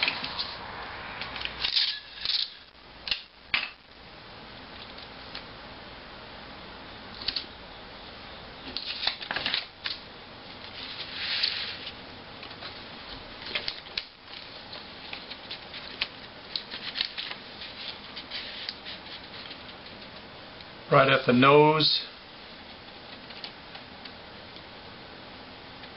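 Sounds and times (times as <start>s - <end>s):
paper rustling and crinkling: 10.7s - 20.2s.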